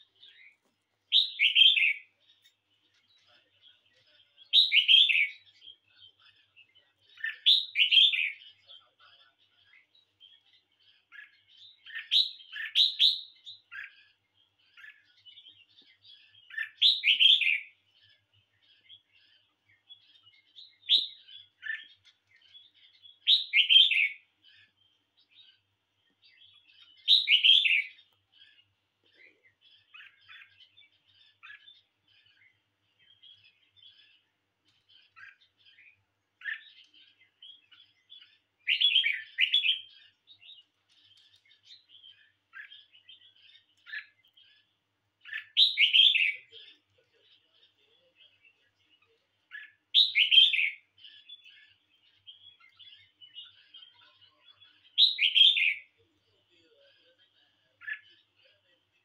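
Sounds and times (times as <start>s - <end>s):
bird singing bubbling phrases: 0.0s - 34.3s, 35.0s - 44.6s, 45.2s - 59.0s
soft bird chirps: 0.0s - 59.0s.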